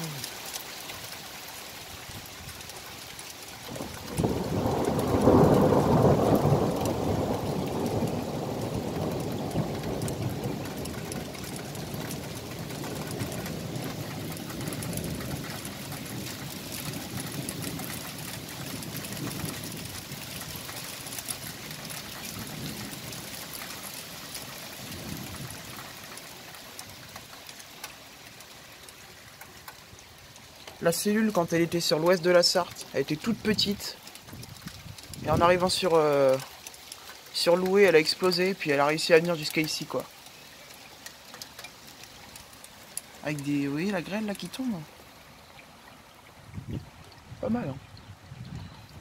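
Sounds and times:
rain pouring on pavement: 0.0s - 49.0s
thunder rumbling: 3.6s - 26.2s.

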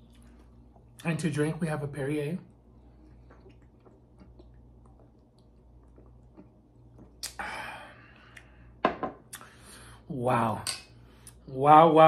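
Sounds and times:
breathy exhale: 7.4s - 8.8s, 9.4s - 10.1s.

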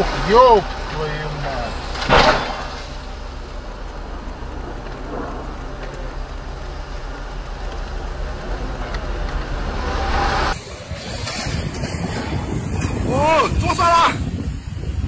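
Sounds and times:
dump truck crashing onto its side: 0.0s - 7.2s
low engine rumble: 0.0s - 15.0s.

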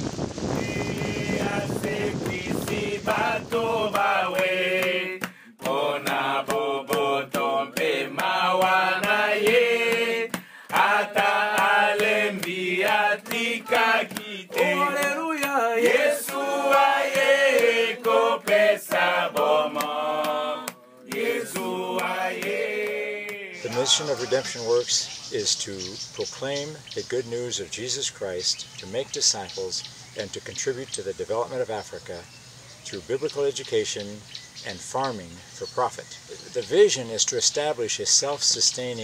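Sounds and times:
low rushing noise: 0.0s - 5.2s
voices chanting a melody: 0.5s - 27.2s.

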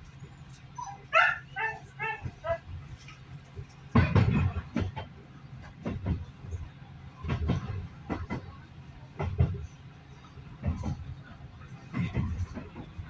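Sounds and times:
small dog yipping: 0.8s - 2.6s
train wheels clattering over rail joints: 2.3s - 13.0s.

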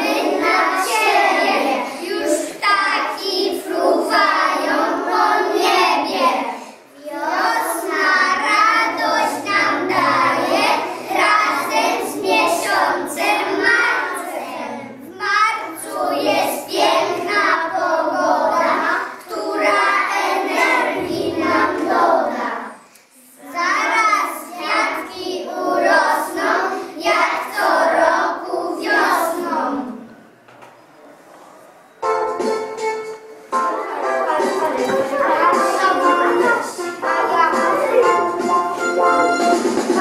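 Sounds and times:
children singing together: 0.0s - 30.1s, 33.6s - 40.0s.

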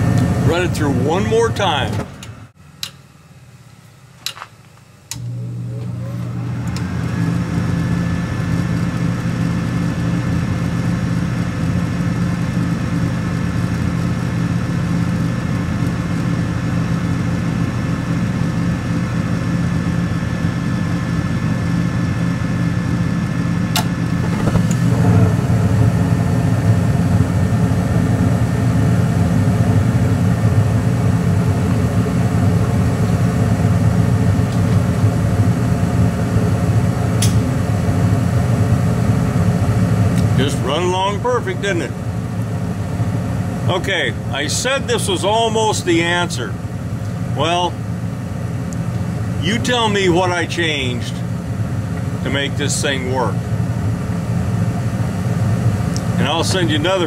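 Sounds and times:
furnace motor hum and whine: 0.0s - 57.0s
igniter click: 2.2s - 3.0s, 5.1s - 6.9s
burners lighting: 23.7s - 28.9s.

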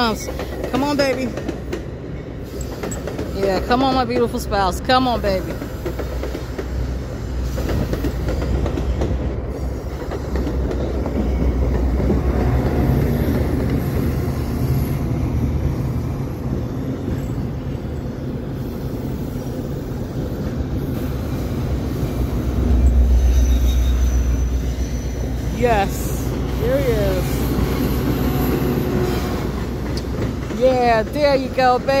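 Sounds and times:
diesel locomotive rumble: 0.0s - 32.0s
train wheels rumbling on rail: 0.0s - 32.0s.

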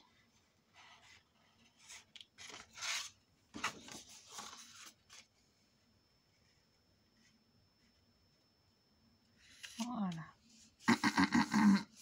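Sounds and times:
cardstock rustling and scraping: 0.8s - 5.3s.

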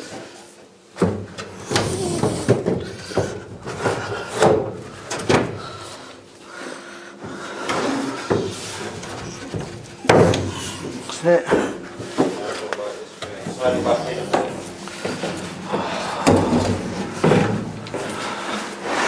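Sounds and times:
wooden boards knocking and scraping: 1.0s - 5.6s, 7.7s - 12.5s, 13.3s - 19.0s.

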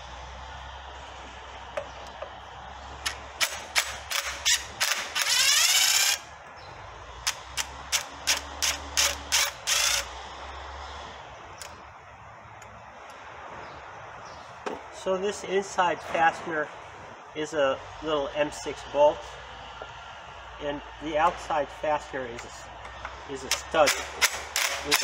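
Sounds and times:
impact driver bursts: 3.0s - 6.3s, 7.2s - 10.1s, 23.5s - 25.0s.

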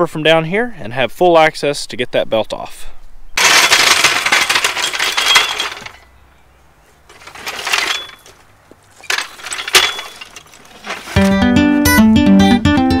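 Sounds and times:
metal floor jack scraping on gravel: 3.4s - 6.1s, 7.1s - 11.6s.

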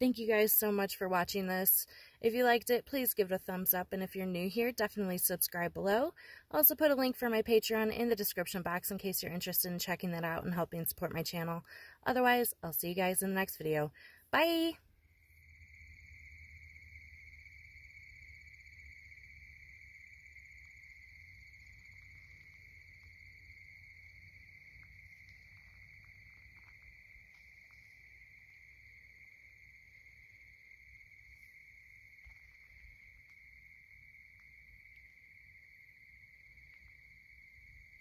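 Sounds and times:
crickets trilling: 14.4s - 38.0s.

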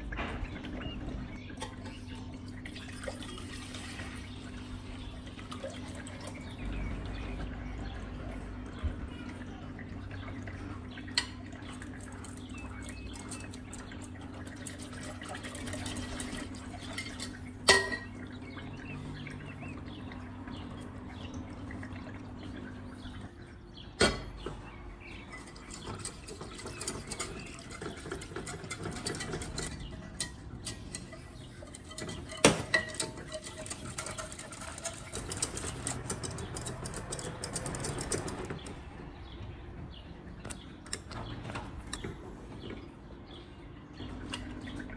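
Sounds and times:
milk sloshing: 0.0s - 7.7s, 8.3s - 23.6s, 25.0s - 39.2s
whisk ticking against glass: 11.1s - 18.2s, 25.2s - 38.6s
whisk clinking on pot: 11.2s - 18.2s, 25.3s - 38.4s.

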